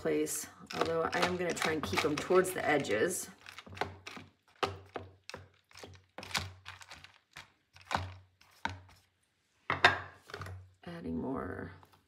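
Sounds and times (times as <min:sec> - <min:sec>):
dried beans clicking in tub: 0:00.6 - 0:08.8.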